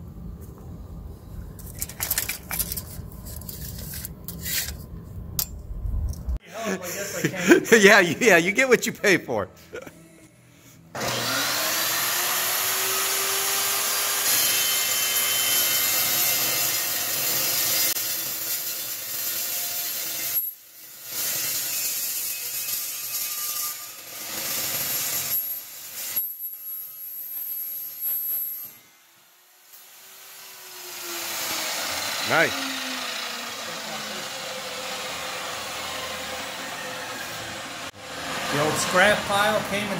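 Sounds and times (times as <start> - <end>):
chop saw cutting steel: 11.0 - 26.4, 29.5 - 39.5.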